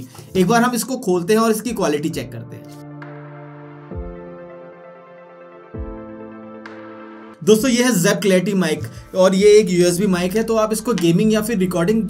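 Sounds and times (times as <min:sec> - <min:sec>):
ambient synth chords: 0:02.5 - 0:07.4.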